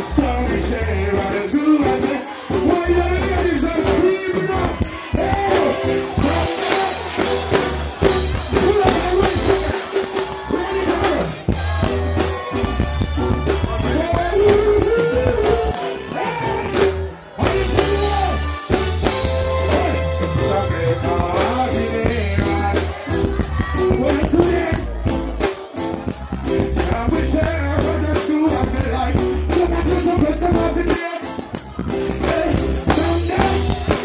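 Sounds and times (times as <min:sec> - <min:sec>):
reggae music with singer: 0:00.0 - 0:34.0.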